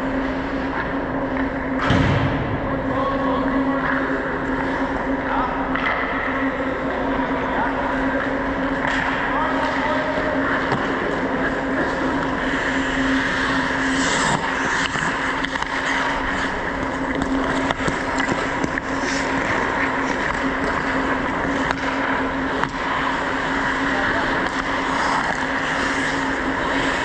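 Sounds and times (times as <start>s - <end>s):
steady hum: 0.0s - 27.0s
skates scraping ice: 7.7s - 27.0s.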